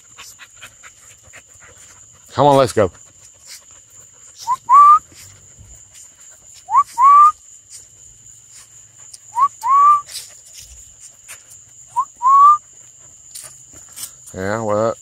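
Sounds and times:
person whistling two-note calls: 0:04.4 - 0:05.0, 0:06.7 - 0:07.4, 0:09.4 - 0:10.1, 0:12.0 - 0:12.6.

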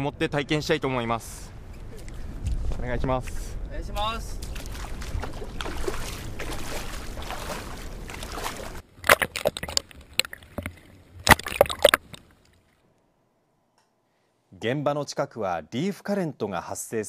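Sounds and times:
wind: 0:00.0 - 0:17.0
shallow sea water: 0:04.4 - 0:12.9
swimmer splashing: 0:04.6 - 0:12.2.

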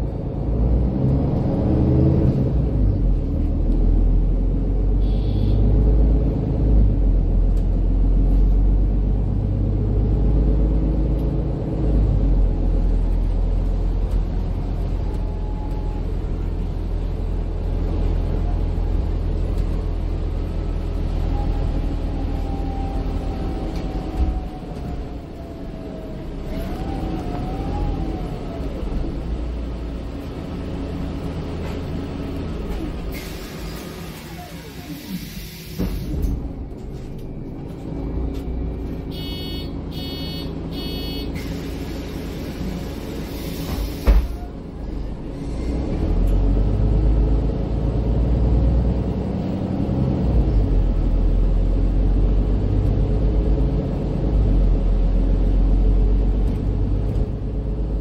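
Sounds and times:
diesel engine rumble: 0:00.0 - 0:58.0
bus drivetrain running down: 0:09.8 - 0:39.3, 0:41.4 - 0:58.0
compressed air hiss: 0:34.9 - 0:36.1
short beeps: 0:38.5 - 0:41.3
thud: 0:43.7 - 0:44.4.

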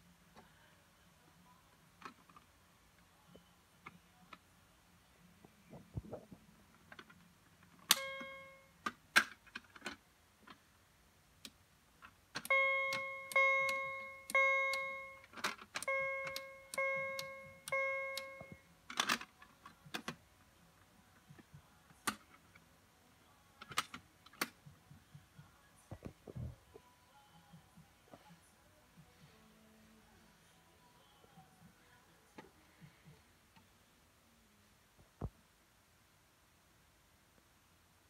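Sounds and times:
fire alarm chimes: 0:07.9 - 0:08.6, 0:12.4 - 0:15.2, 0:15.8 - 0:18.6.

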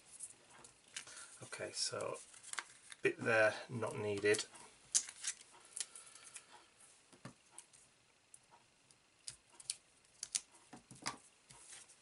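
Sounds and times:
hands rustling paper: 0:00.0 - 0:06.5.

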